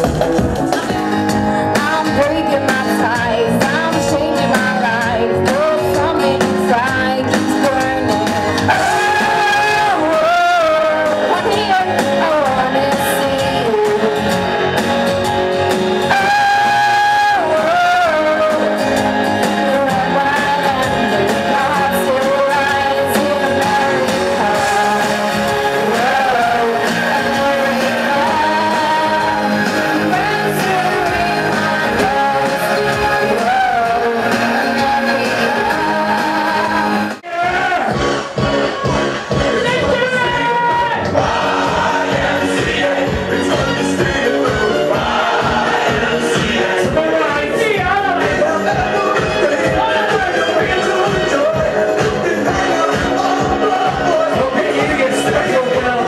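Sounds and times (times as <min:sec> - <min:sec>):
amplified backing music: 0:00.0 - 0:56.0
woman singing into a microphone: 0:01.5 - 0:14.4, 0:16.1 - 0:19.0, 0:19.6 - 0:37.2.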